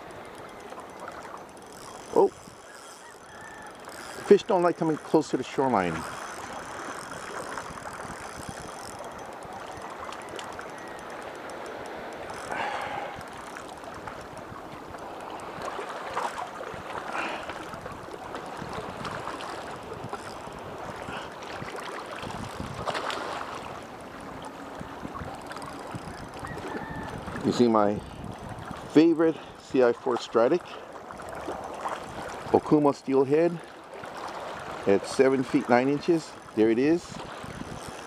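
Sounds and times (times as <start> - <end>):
small waves washing at shore: 0.0 - 38.0.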